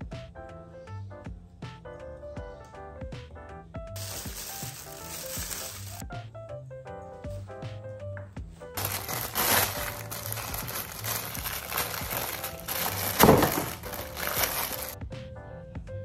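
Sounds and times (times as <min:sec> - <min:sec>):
soft background music: 0:00.0 - 0:16.0
plastic wrapping crinkling: 0:04.0 - 0:06.0, 0:08.8 - 0:15.0.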